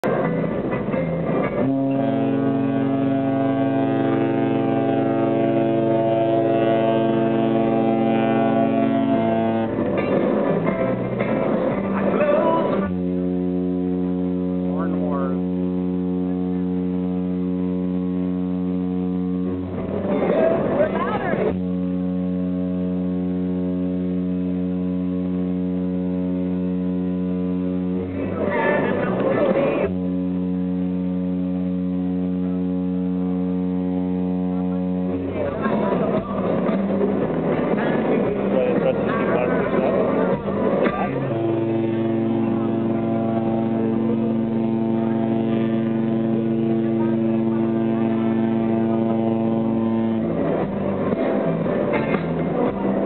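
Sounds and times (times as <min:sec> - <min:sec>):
ship horn blast: 0:00.0 - 0:53.0.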